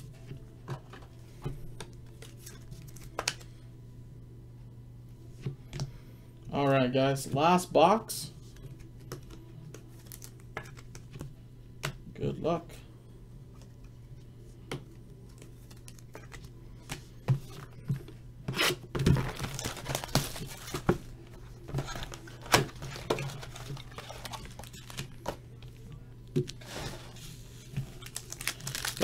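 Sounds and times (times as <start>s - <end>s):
low steady hum: 0.0s - 29.0s
wrapping tearing and crinkling: 18.6s - 20.9s, 21.8s - 25.4s, 26.5s - 29.0s.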